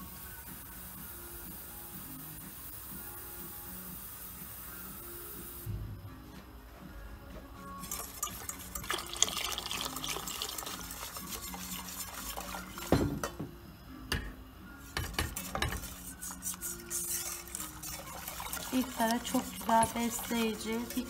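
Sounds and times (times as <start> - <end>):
soup sloshing: 7.8 - 12.9, 16.1 - 21.0
whisk scraping a metal pot: 7.8 - 13.0, 14.9 - 21.0.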